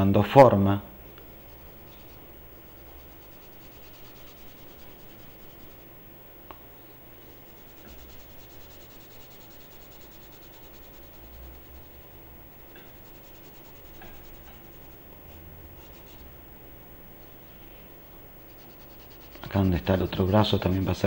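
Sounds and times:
pencil scratching on paper: 0:01.4 - 0:05.9, 0:07.3 - 0:16.3, 0:18.4 - 0:21.0.

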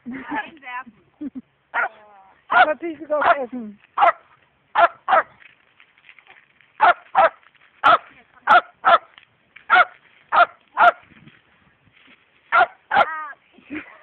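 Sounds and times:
dog barking: 0:01.8 - 0:03.4, 0:04.0 - 0:04.2, 0:04.8 - 0:05.3, 0:06.8 - 0:09.1, 0:09.7 - 0:11.0, 0:12.5 - 0:13.1.

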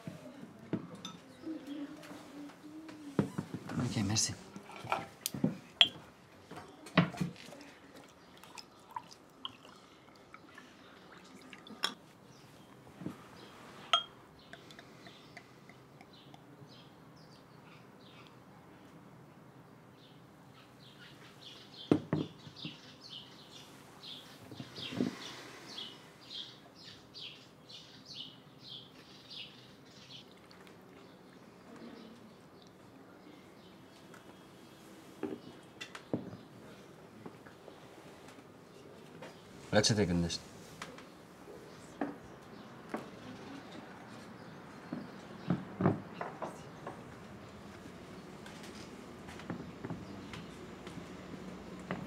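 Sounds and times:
bottles and glasses clinking: 0:05.8 - 0:06.0, 0:11.7 - 0:12.0, 0:13.9 - 0:14.8
beer pouring into a glass: 0:08.0 - 0:12.0.

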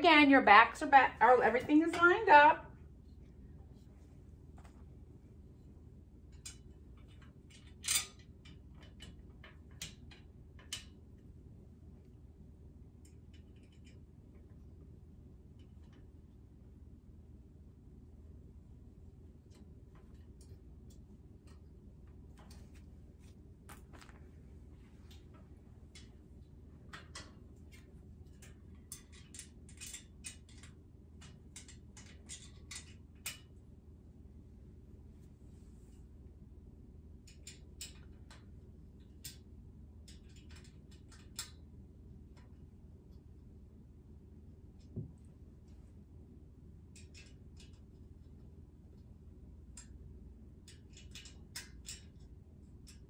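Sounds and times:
metal parts clicking and scraping: 0:06.3 - 0:10.9, 0:26.9 - 0:33.5, 0:40.0 - 0:41.5, 0:50.6 - 0:53.0.

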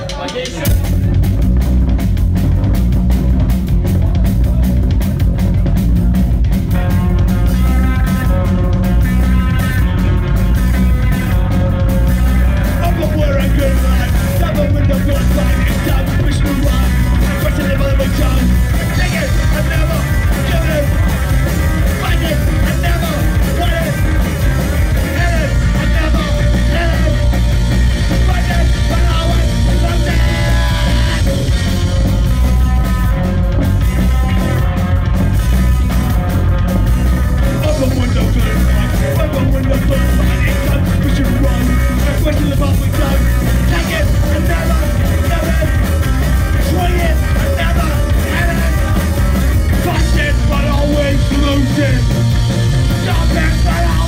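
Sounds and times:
punk rock band playing: 0:00.0 - 0:54.0
singer shouting: 0:12.1 - 0:32.7, 0:37.4 - 0:54.0.

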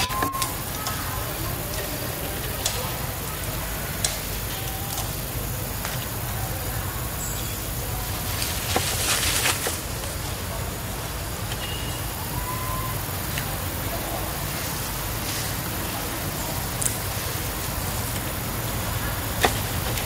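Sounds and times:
faint whistle-like notes: 0:00.0 - 0:08.1, 0:11.5 - 0:14.4
low rumble of distant traffic: 0:00.0 - 0:20.0.

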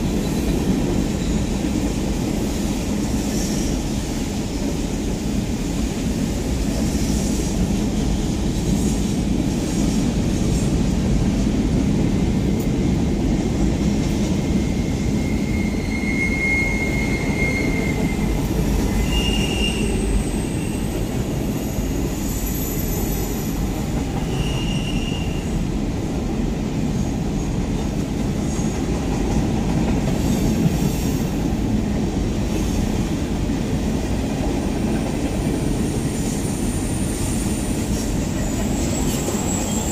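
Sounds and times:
steel wheels rumbling on rail: 0:00.0 - 0:39.9
high-pitched wheel squeals: 0:14.7 - 0:21.0, 0:24.2 - 0:25.6.

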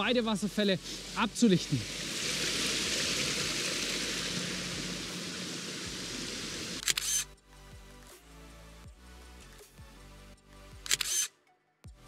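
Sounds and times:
waterfall rushing: 0:00.0 - 0:06.8
quiet background music: 0:00.0 - 0:12.0
sharp clicks: 0:06.8 - 0:07.2, 0:10.9 - 0:11.3.

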